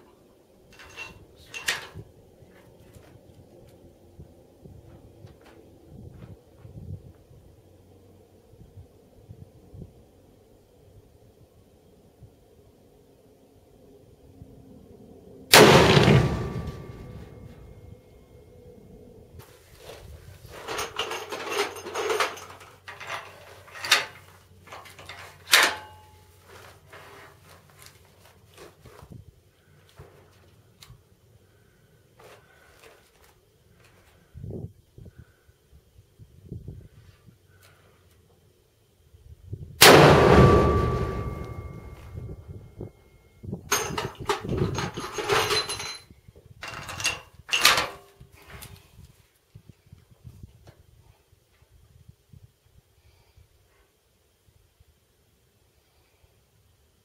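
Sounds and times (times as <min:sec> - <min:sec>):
metallic clatter of rifle loading: 0:00.7 - 0:02.0, 0:19.8 - 0:27.2, 0:43.7 - 0:48.8.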